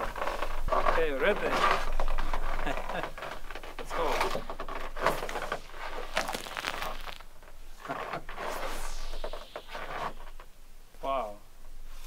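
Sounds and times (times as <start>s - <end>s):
hissing crackling water spray: 5.3s - 10.6s.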